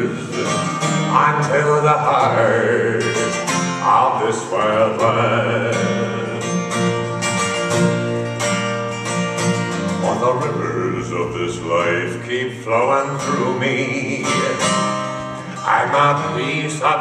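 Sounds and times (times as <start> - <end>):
man singing: 0.0 - 6.9, 9.9 - 17.0
strummed acoustic guitar: 0.0 - 17.0.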